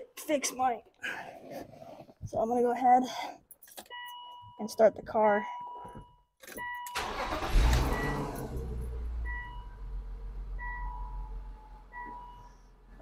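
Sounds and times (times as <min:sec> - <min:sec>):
car engine starter cranking: 0:06.6 - 0:10.7
car engine idling: 0:07.0 - 0:12.9.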